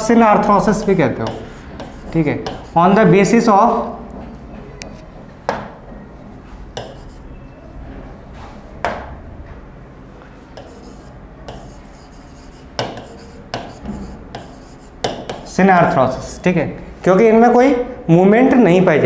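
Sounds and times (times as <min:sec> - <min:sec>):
writing strokes on a board: 0:00.8 - 0:03.0, 0:06.8 - 0:07.3, 0:10.6 - 0:15.6.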